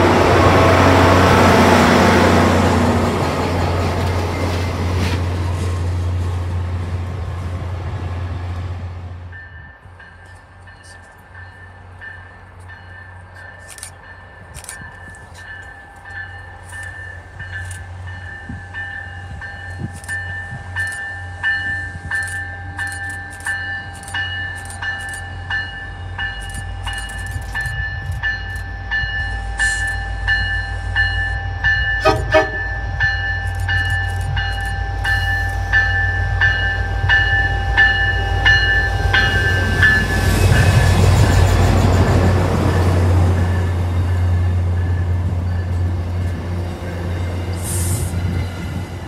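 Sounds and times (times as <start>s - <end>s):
train horn: 0.0s - 3.1s, 32.0s - 33.0s
train engine and wheels rumbling: 0.0s - 49.0s
bell ringing: 9.4s - 42.0s.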